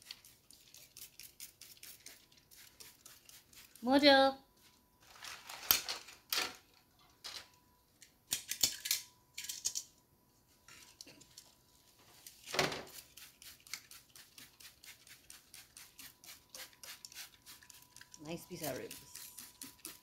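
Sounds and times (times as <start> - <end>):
spray bottle hissing: 13.2 - 17.8.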